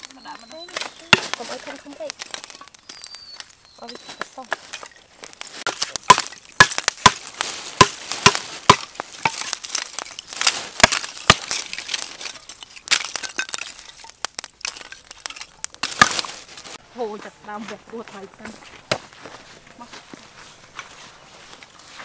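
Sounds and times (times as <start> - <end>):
charcoal fire crackling: 0.0 - 22.0.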